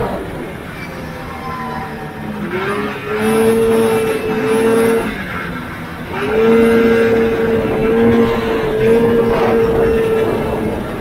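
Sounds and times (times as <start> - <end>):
snowmobile engine revving: 0.0 - 11.0.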